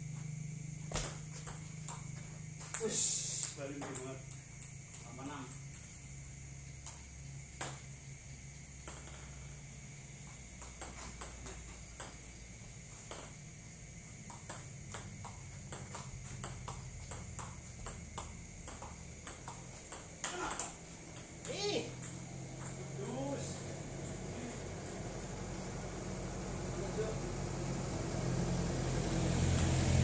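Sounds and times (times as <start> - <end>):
low steady hum: 0.0 - 30.0
table tennis ball clicks: 8.8 - 9.4, 14.3 - 25.4.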